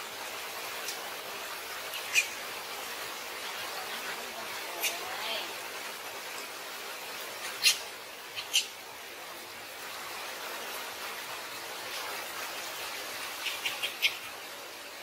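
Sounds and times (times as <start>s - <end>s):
steady hiss: 0.0s - 15.0s
baby monkey squeaking: 2.0s - 2.4s.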